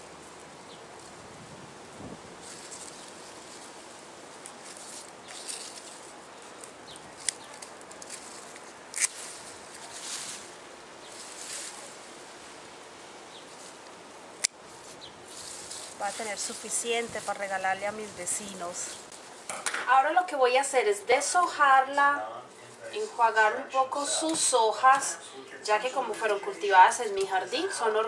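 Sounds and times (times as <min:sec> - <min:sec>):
leafy stems rustling: 0:00.0 - 0:28.0
scissors snipping stems: 0:06.6 - 0:09.9.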